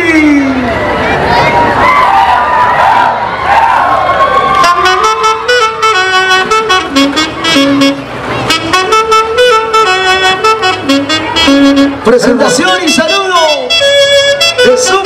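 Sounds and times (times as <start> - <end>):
crowd noise: 0.0 - 15.0
saxophone led orchestra: 4.5 - 15.0.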